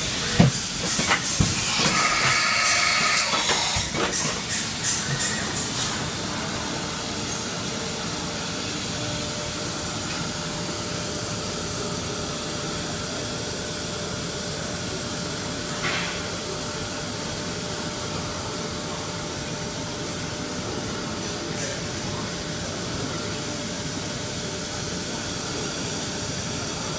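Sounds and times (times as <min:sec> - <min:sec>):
machining centre hiss: 0:00.1 - 0:05.4.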